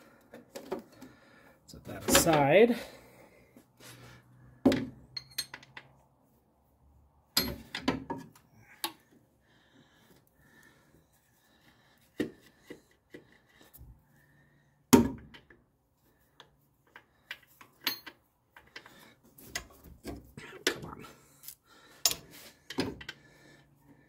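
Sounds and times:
metal clinks and knocks: 4.7 - 6.0, 7.3 - 8.4, 16.9 - 19.0.

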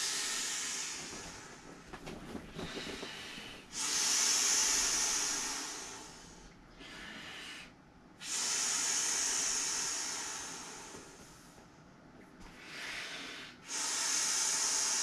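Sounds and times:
breath blown into inflatable valve: 3.7 - 6.3, 8.2 - 11.1.

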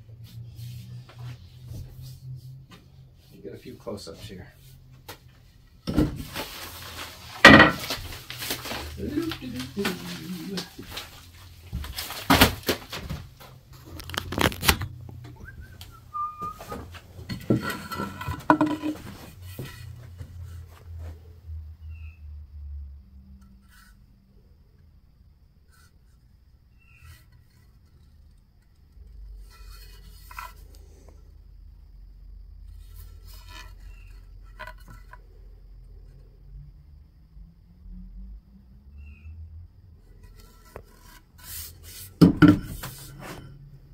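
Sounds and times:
knocks and rustling: 4.9 - 21.2, 40.2 - 43.5
short whistle-like tone: 15.4 - 16.8.

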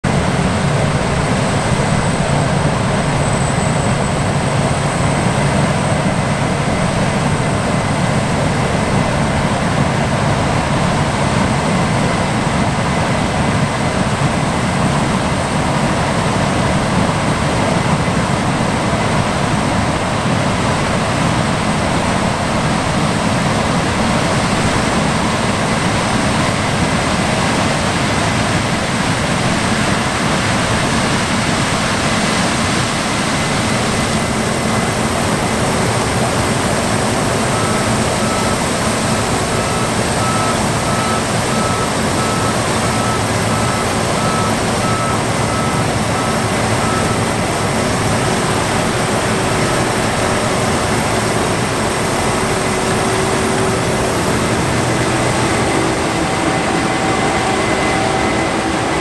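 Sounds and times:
combine harvesters running: 0.0 - 59.0
thin high whine: 31.0 - 59.0.

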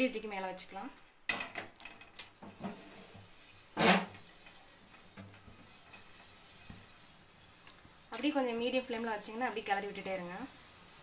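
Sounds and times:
spatula scraping batter: 2.3 - 11.0.

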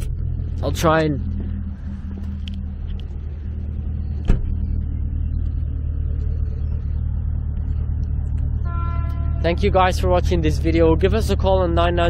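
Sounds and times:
engine idling: 0.0 - 12.0
sharp thump: 4.2 - 4.6.

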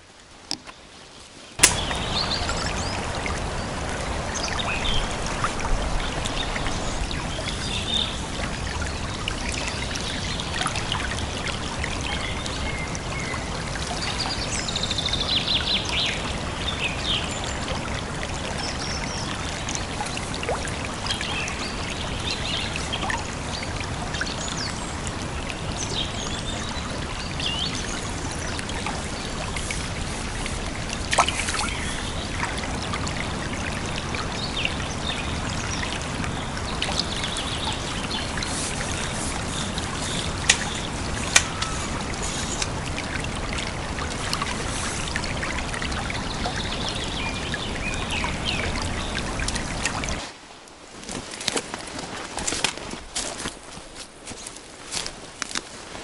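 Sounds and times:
stream trickling: 0.0 - 56.0
small birds chirping: 34.3 - 42.8.

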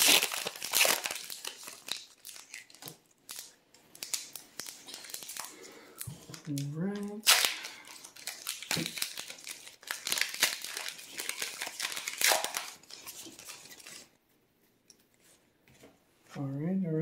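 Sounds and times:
foil wrapper crinkling and tearing: 0.0 - 14.2
cards being handled: 8.0 - 14.1.

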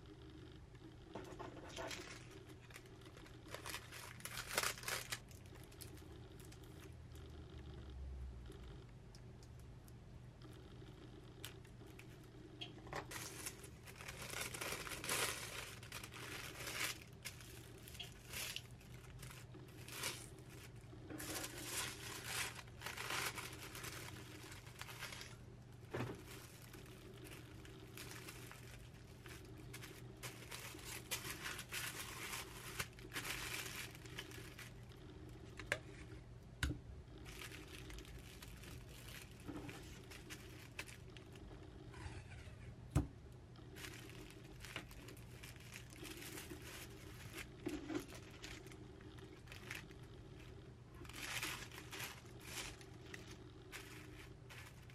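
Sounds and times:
faint steady hum: 0.0 - 54.9
wrapping paper rustling: 1.2 - 6.9, 13.0 - 36.0, 37.2 - 41.4, 43.7 - 54.9.

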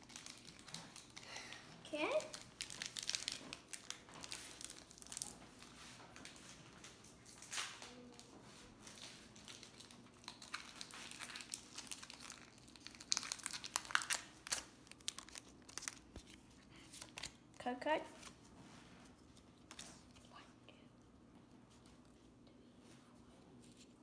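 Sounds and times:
foil wrappers crinkling: 0.0 - 17.6.

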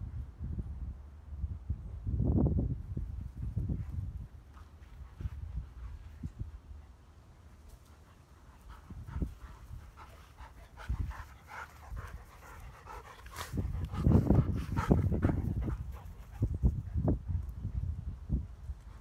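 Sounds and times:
dogs panting: 4.5 - 17.4.

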